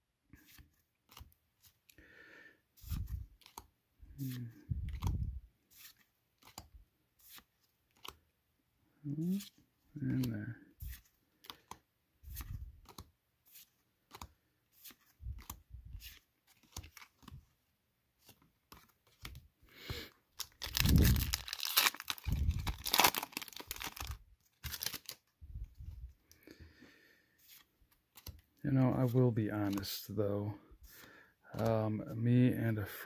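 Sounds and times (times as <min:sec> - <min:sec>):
cards tapping and rustling: 0:02.8 - 0:08.2, 0:09.5 - 0:17.5, 0:20.4 - 0:25.3, 0:27.4 - 0:30.0, 0:30.9 - 0:31.8
foil wrapper tearing and crinkling: 0:20.4 - 0:25.2.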